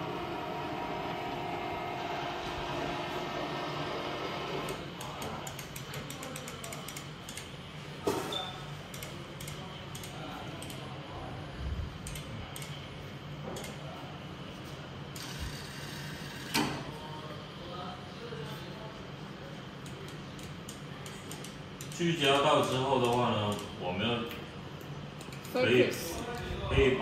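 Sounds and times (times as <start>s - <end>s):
machine hum: 0.0s - 5.7s
machine clicks: 4.6s - 7.5s.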